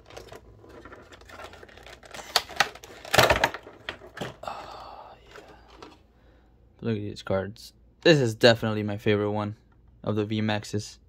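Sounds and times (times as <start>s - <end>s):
plastic tray clicking and crackling: 0.0s - 4.4s.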